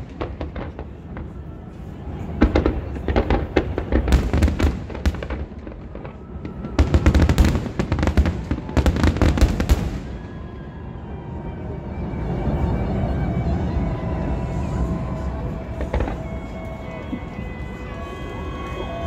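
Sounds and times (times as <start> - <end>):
fireworks cracks and booms: 0.0 - 10.4, 15.2 - 19.0.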